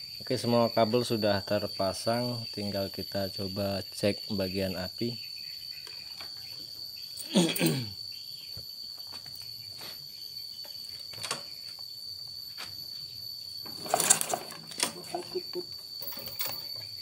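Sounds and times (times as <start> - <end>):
cricket trilling: 0.0 - 17.0
handling clatter: 13.6 - 17.0.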